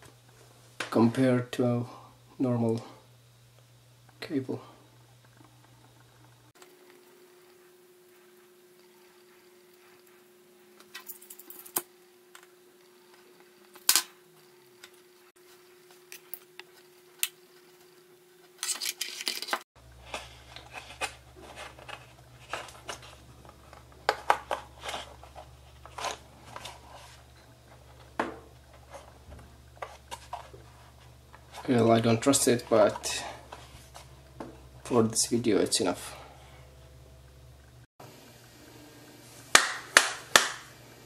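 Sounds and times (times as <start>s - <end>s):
cable rustling: 18.6s - 34.2s.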